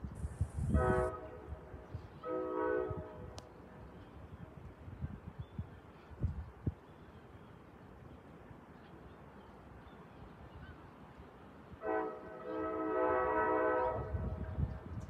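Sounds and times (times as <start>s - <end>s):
faint outdoor background: 0.0s - 15.0s
train horn blasts: 0.6s - 3.4s, 11.8s - 14.9s.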